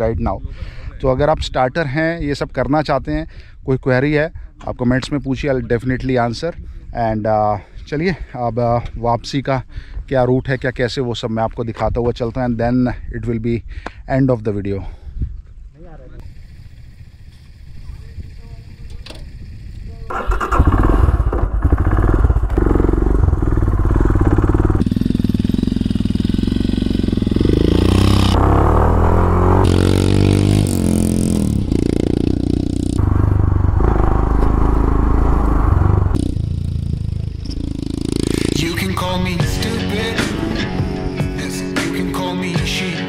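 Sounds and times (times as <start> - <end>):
motorcycle engine riding: 16.2 - 41.8.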